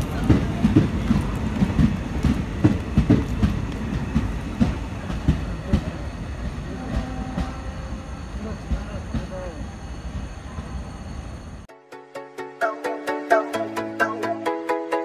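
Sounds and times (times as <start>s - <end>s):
train wheels clattering over rail joints: 0.0s - 9.6s
low train rumble: 0.0s - 11.7s.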